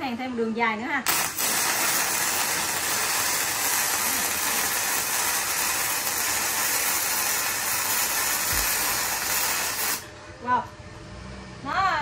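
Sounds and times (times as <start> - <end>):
welding arc sizzling: 1.0 - 10.1.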